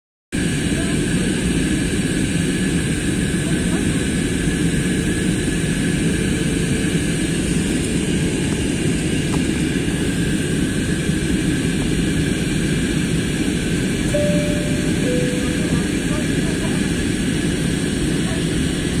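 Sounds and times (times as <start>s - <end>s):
airliner cabin drone: 0.4s - 19.0s
faint high whine: 14.1s - 16.5s.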